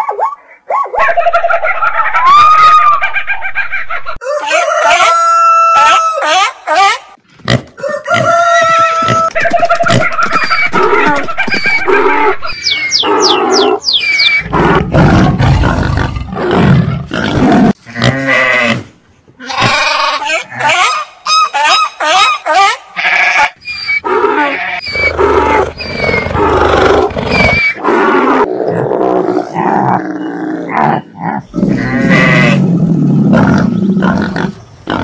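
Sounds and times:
animal calls: 8.8 - 14.8, 19.5 - 28.5.

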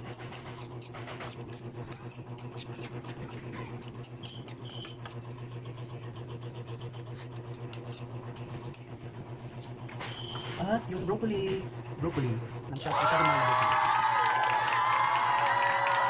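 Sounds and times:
metal spoon scraping wok: 0.0 - 5.2, 7.0 - 8.9
steady low hum: 0.0 - 16.0.

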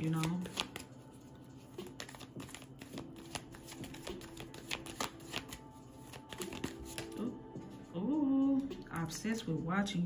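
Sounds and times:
cards being shuffled: 0.0 - 7.3.

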